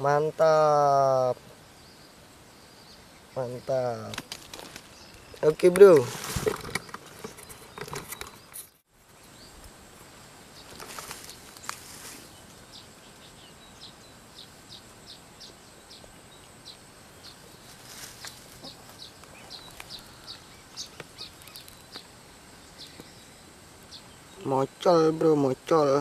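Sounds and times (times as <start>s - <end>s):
rustle: 0.0s - 26.0s
small animal chirping: 19.5s - 22.1s.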